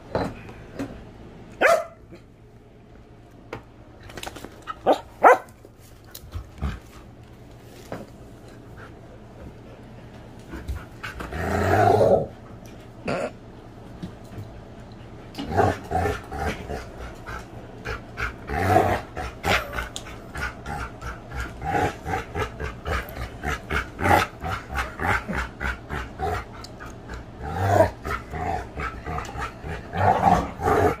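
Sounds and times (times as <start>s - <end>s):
dog growling: 11.1s - 12.4s, 15.4s - 31.0s.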